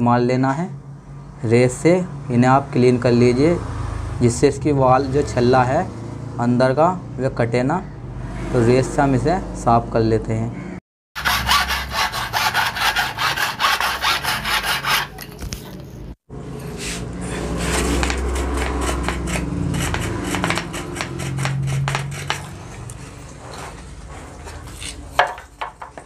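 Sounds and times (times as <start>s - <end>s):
hand file rasping on metal: 11.2s - 15.2s, 16.8s - 22.9s.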